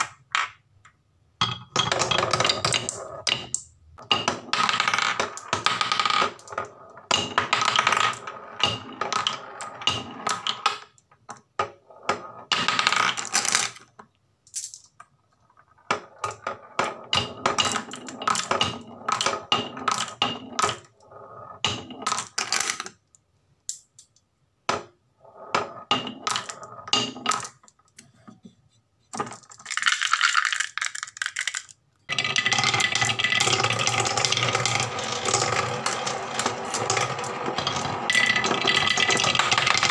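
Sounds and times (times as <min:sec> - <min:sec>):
marbles clattering down wooden run: 0:01.8 - 0:10.8, 0:15.9 - 0:20.9, 0:29.2 - 0:39.9
marbles circling wooden funnel: 0:01.8 - 0:11.0, 0:15.3 - 0:23.0, 0:25.2 - 0:27.8, 0:29.1 - 0:39.9.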